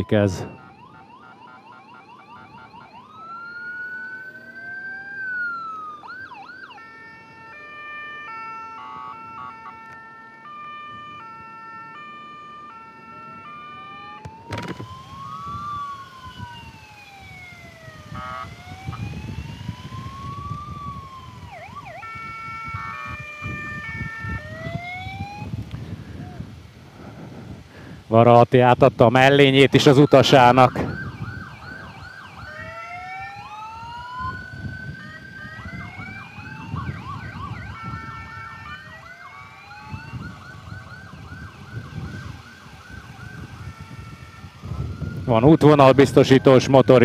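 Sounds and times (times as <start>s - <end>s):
emergency vehicle sirens wailing: 0.0s - 47.0s
wind rush: 14.3s - 28.2s, 30.7s - 39.0s, 39.8s - 46.2s.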